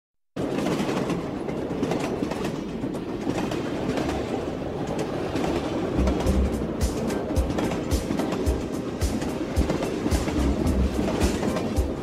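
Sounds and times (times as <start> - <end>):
train rumble: 0.4 - 12.0
wheels clicking over rails: 0.4 - 12.0.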